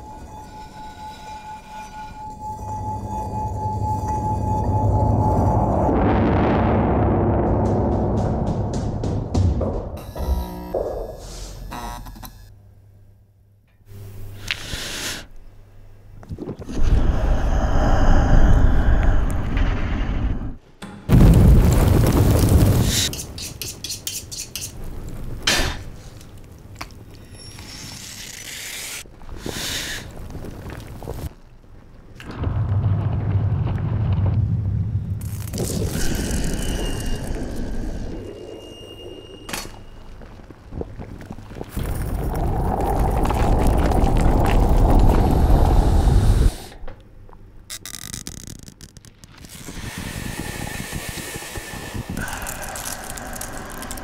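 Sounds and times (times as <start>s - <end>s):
loud rushing rumbling noise: 5.1s - 10.0s.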